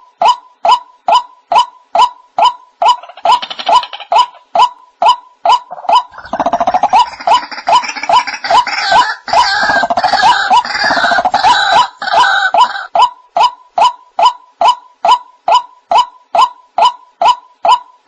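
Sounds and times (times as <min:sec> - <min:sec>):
waterhen kook calls: 0:05.5 - 0:13.0.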